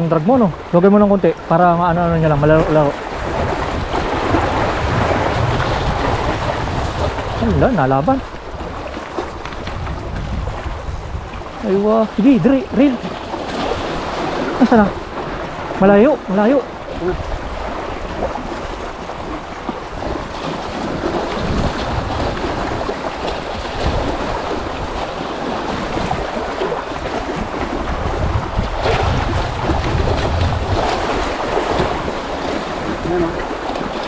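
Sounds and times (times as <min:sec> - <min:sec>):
waves breaking on rocks: 0:00.0 - 0:34.0
wind buffeting microphone: 0:00.0 - 0:34.0.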